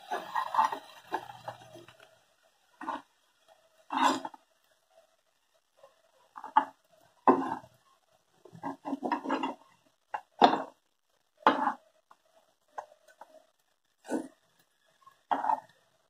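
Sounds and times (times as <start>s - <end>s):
metal spatula scraping iron pan: 0.0s - 1.7s, 3.8s - 4.4s.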